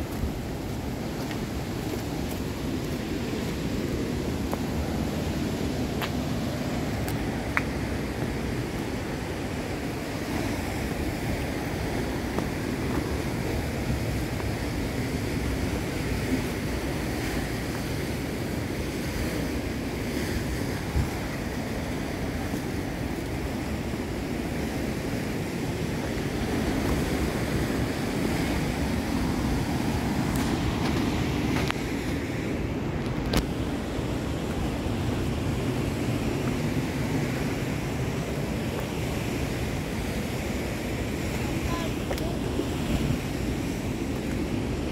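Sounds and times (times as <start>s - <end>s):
surf breaking on rocky shore: 0.0s - 44.9s
wind buffeting microphone: 0.0s - 44.9s.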